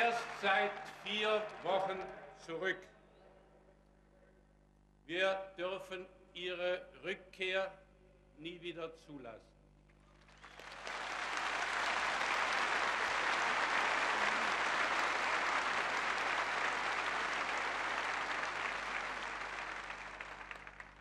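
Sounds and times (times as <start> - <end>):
crowd applauding: 0.0 - 1.8, 10.1 - 21.0.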